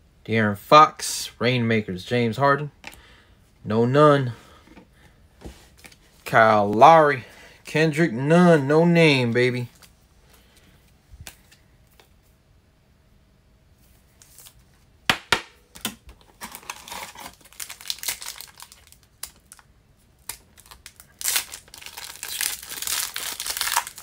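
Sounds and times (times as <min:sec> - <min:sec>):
foil wrapper crinkling: 0:16.3 - 0:24.0
foil ripping: 0:16.4 - 0:19.6, 0:20.2 - 0:24.0.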